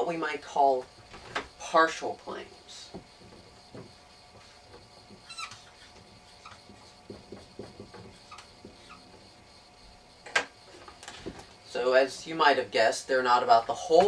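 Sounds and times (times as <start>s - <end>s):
marker squeaking on whiteboard: 3.0s - 9.3s.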